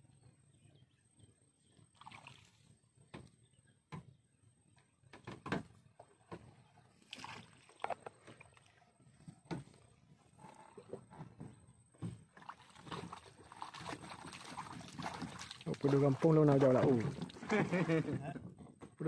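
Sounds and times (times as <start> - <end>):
water slapping boat hull: 5.1 - 19.0.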